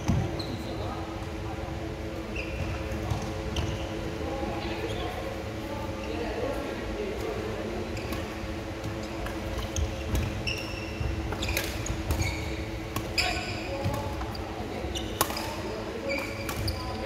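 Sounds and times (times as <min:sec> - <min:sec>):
steady low hum: 0:00.0 - 0:17.0
shoes squeaking on wooden floor: 0:09.7 - 0:13.6
racket hitting shuttlecock: 0:15.2 - 0:15.6.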